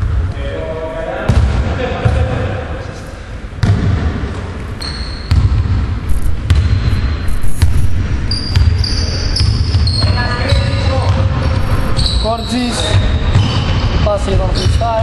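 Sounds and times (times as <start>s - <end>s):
sneakers squeaking on court: 4.7s - 15.0s
basketball bouncing on wooden floor: 5.3s - 5.8s, 6.4s - 8.8s.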